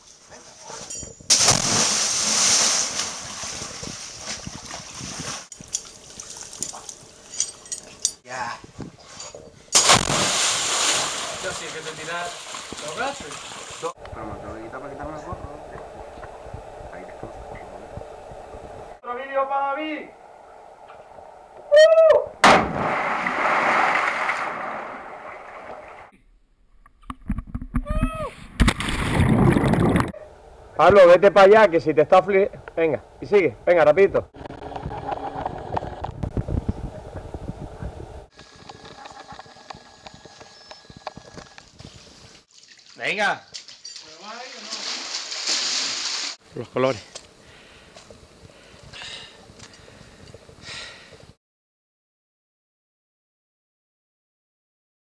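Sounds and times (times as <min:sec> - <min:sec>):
loud splash into water: 0:01.3 - 0:05.4, 0:09.8 - 0:13.9, 0:22.4 - 0:26.0, 0:28.6 - 0:30.1, 0:44.7 - 0:46.4
water churning: 0:01.3 - 0:06.8, 0:09.8 - 0:14.0, 0:22.7 - 0:26.1, 0:44.4 - 0:46.4
churning hissing water: 0:10.0 - 0:14.0
person shouting: 0:27.8 - 0:28.4.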